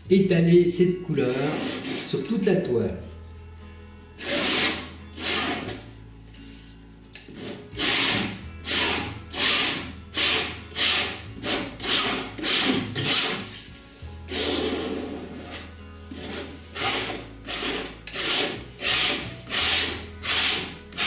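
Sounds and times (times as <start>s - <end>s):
palette knife scraping canvas: 1.3s - 2.2s, 4.2s - 5.9s, 7.3s - 13.7s, 14.3s - 21.0s.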